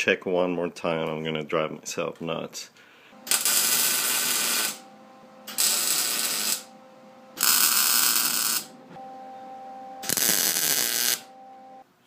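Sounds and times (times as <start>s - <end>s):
faint steady hum: 2.7s - 12.0s
arc welding bursts: 3.2s - 4.8s, 5.4s - 6.7s, 7.4s - 8.8s, 10.0s - 11.3s.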